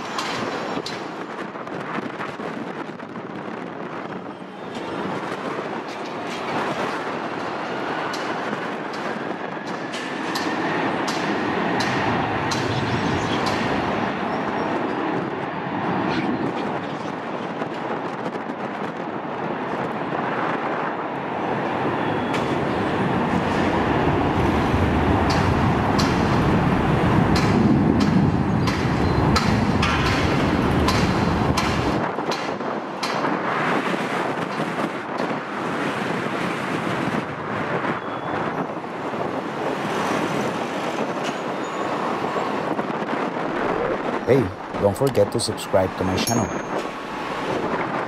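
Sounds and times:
wind rumbling on microphone: 0.0s - 45.1s, 46.2s - 48.0s
jet engines roaring: 3.5s - 18.0s, 42.5s - 48.0s.

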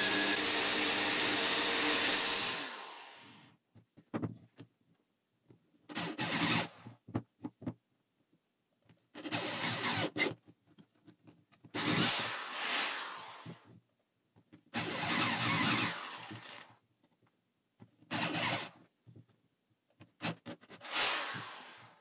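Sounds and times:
electric drill boring into wood: 0.0s - 3.4s, 6.0s - 6.7s, 9.2s - 10.3s, 11.8s - 13.6s, 14.8s - 16.7s, 18.1s - 18.7s, 20.2s - 22.0s.

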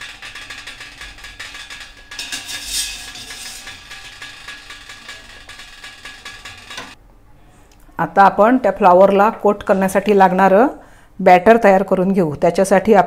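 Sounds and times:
wire strainer clinking on steel: 0.0s - 7.0s.

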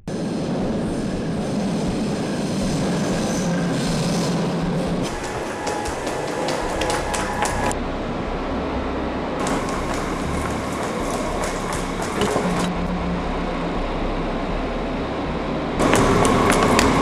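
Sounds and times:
electric train arriving: 0.0s - 17.0s
underground station rumble: 0.0s - 17.0s
scattered clicks: 3.4s - 7.8s.

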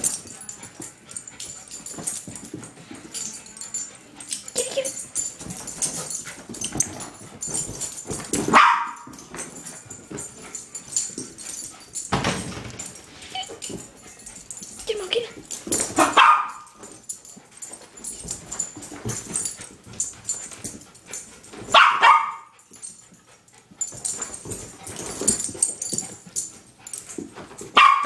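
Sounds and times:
dog barking: 8.5s - 9.1s, 16.0s - 16.7s, 21.7s - 22.5s, 27.8s - 28.0s.

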